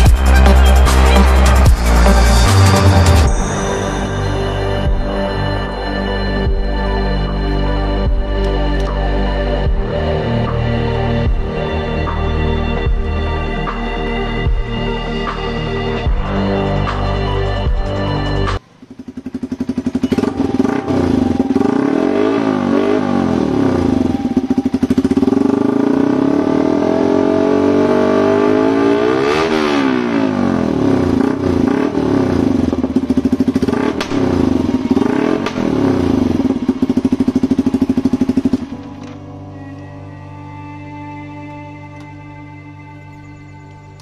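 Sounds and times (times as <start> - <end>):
motorcycle engine revving: 17.1 - 39.3.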